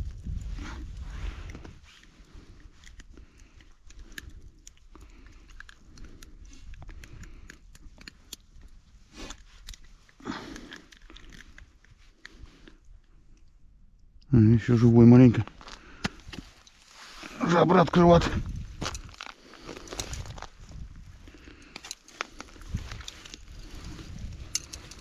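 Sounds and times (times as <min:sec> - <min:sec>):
crunching on ice and snow: 0:15.4 - 0:25.0.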